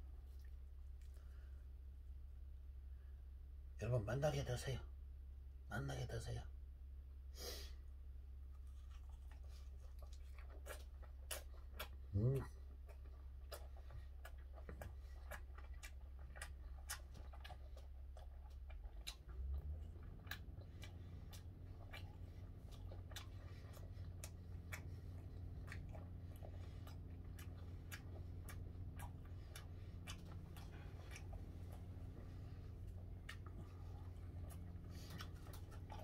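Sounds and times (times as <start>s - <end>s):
man chewing food: 0.0s - 3.2s, 7.8s - 36.0s
low hum: 7.9s - 36.0s.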